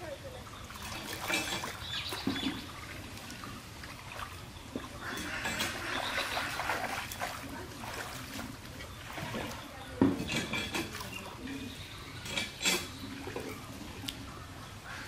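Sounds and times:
hands splashing in muddy water: 5.0s - 8.4s.

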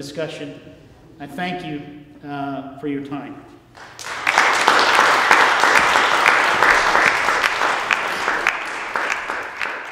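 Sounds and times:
audience applauding: 3.8s - 9.9s.

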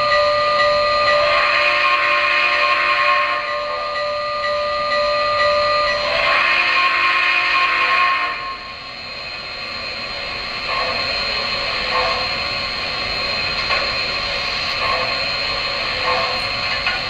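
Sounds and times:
model train whirring and rattling: 0.0s - 17.0s
train wheels clicking on track: 9.6s - 17.0s.

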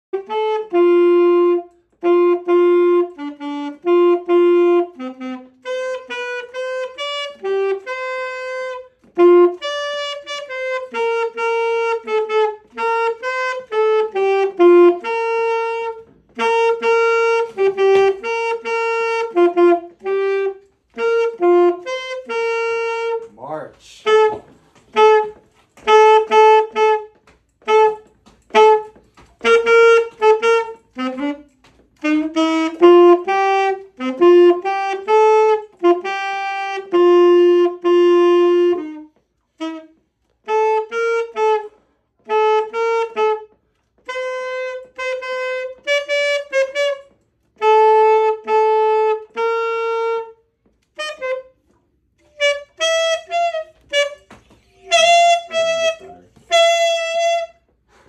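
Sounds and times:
solo saxophone melody: 0.0s - 58.0s.

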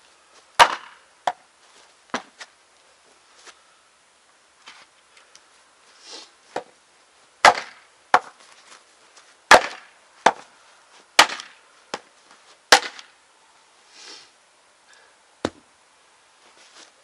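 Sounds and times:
axe chopping wood: 0.6s - 1.4s, 7.4s - 8.4s, 9.5s - 10.5s, 11.2s - 12.1s, 12.7s - 13.1s, 15.4s - 15.7s.

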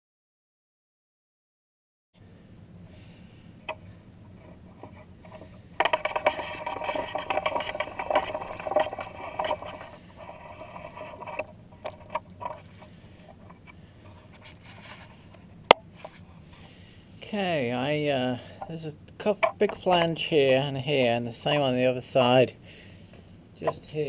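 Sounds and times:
scraping and rattling: 3.7s - 15.4s
clicks and knocks: 4.4s - 12.6s.

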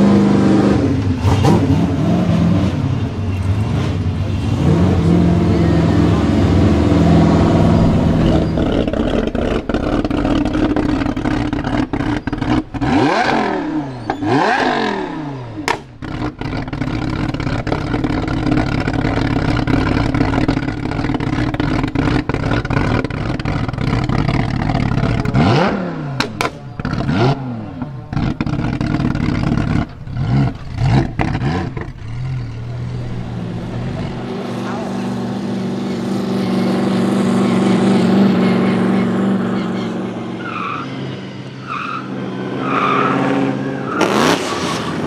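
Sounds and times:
sports car engine revving: 0.0s - 40.7s, 42.2s - 45.0s
exhaust cracks: 6.1s - 34.9s.

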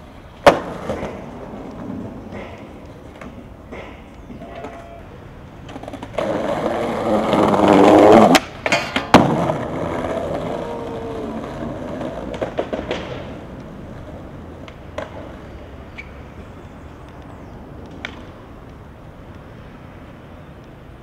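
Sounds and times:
skateboard clacking on ground: 0.0s - 21.0s
skateboard wheels rolling on tiles: 0.0s - 21.0s
skateboard grinding on concrete: 0.2s - 16.2s.

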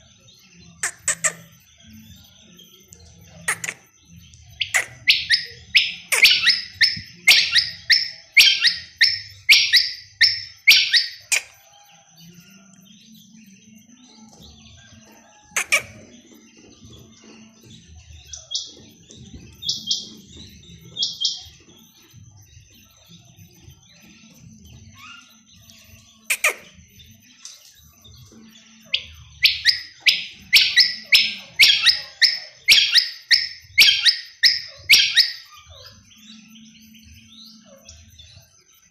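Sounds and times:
quail calling: 4.6s - 11.4s, 29.4s - 35.5s.

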